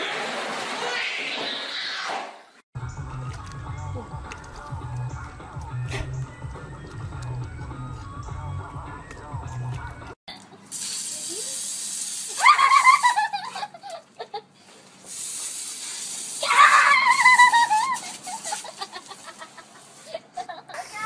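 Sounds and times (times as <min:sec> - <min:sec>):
hose spray nozzle hissing: 0:10.7 - 0:12.4, 0:15.0 - 0:20.2
girl squealing laughter: 0:12.3 - 0:14.5, 0:16.4 - 0:20.9.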